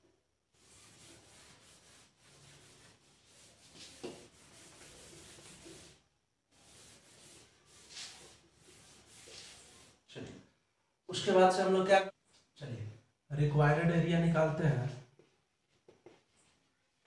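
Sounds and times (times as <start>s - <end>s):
whiteboard being wiped: 0.6s - 10.1s, 15.2s - 17.0s.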